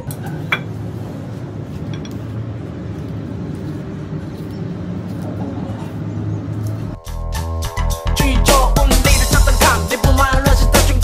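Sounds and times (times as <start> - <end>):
tortoise chewing vegetables: 1.0 - 7.0.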